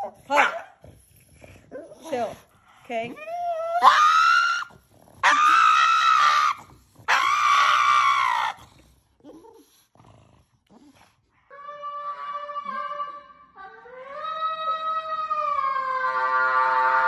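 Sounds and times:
dog screaming: 0:03.6 - 0:08.6.

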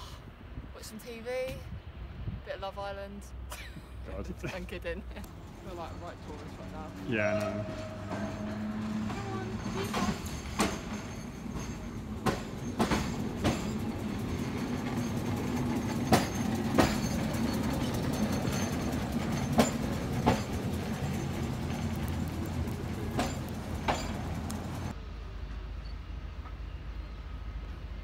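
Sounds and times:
electric tram humming: 0:02.7 - 0:28.0
tram wheels clacking on rails: 0:04.6 - 0:25.0.

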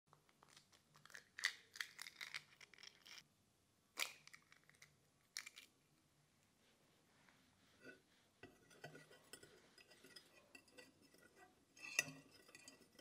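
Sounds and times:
eggshells cracking: 0:00.4 - 0:03.2, 0:04.0 - 0:05.7.

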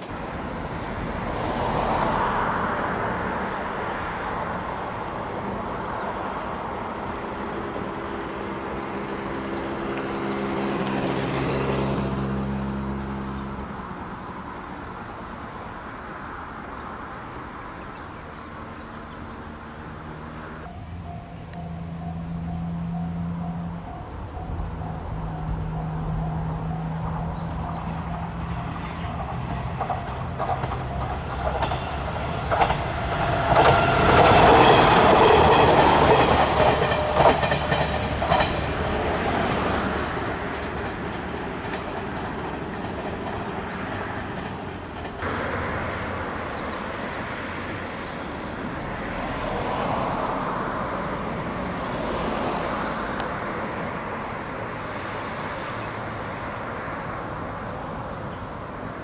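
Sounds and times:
diesel engine humming: 0:00.0 - 0:54.9
train wheels clacking on rail joints: 0:20.6 - 0:45.4.

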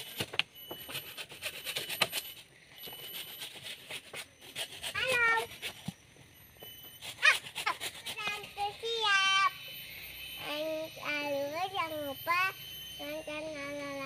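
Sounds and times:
hand saw cutting bamboo: 0:00.0 - 0:06.0, 0:07.0 - 0:08.7
high insect whine: 0:00.0 - 0:14.0.

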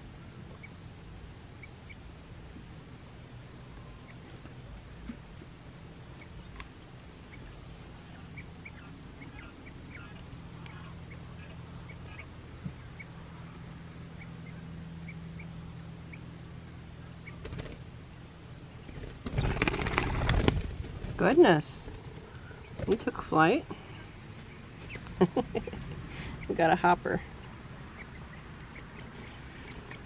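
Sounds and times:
low steady hum: 0:00.0 - 0:30.0
quail chicks peeping: 0:00.5 - 0:00.8, 0:01.5 - 0:02.1, 0:06.1 - 0:17.9, 0:21.2 - 0:30.0.

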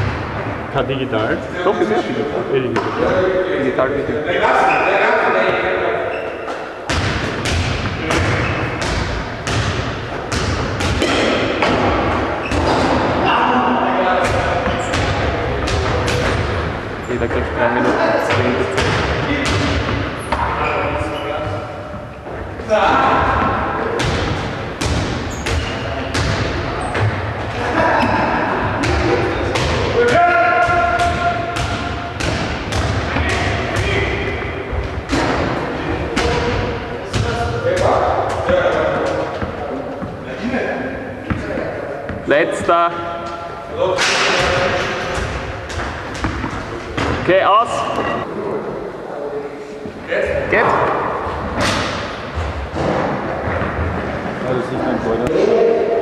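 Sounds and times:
balls thudding in echoing hall: 0:00.0 - 0:56.0
balls and bat striking: 0:06.5 - 0:13.3, 0:44.0 - 0:47.3.

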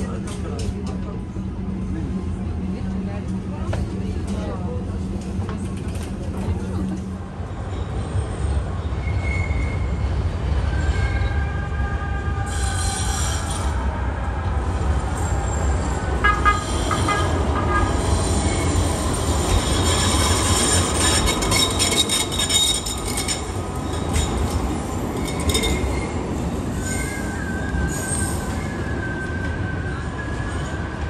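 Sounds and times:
tram rumbling: 0:00.0 - 0:31.0
wheel squeal: 0:08.4 - 0:11.5, 0:18.2 - 0:30.9.

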